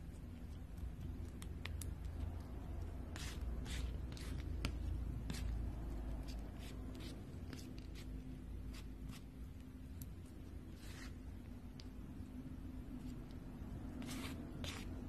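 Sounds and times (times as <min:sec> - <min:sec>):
palette knife scraping paint: 0:02.8 - 0:11.9, 0:13.0 - 0:15.0.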